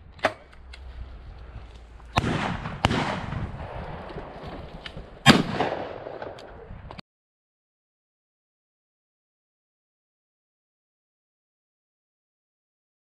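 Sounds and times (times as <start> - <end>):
shotgun shots with echo: 2.1 - 4.6, 5.2 - 6.5.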